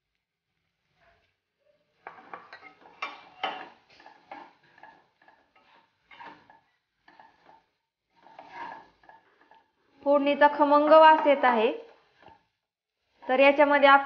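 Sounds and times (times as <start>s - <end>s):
metal spoon scraping metal pan: 2.0s - 12.5s.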